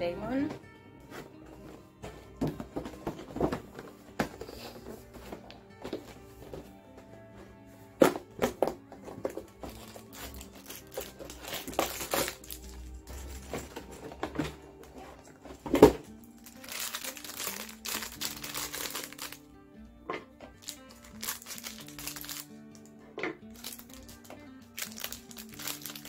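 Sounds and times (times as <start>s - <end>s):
background music with held notes: 0.0s - 26.0s
plastic bag crinkling: 9.6s - 14.1s, 16.2s - 19.4s, 20.6s - 22.8s, 23.5s - 26.0s.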